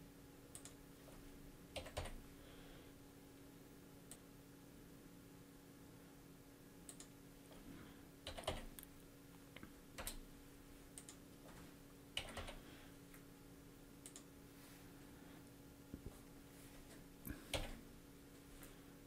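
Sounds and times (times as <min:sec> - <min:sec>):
steady low hum: 0:00.0 - 0:19.0
keyboard typing: 0:01.7 - 0:02.2, 0:06.9 - 0:07.1, 0:08.2 - 0:08.8, 0:10.0 - 0:10.2, 0:10.9 - 0:11.6, 0:12.2 - 0:12.6, 0:17.5 - 0:17.8.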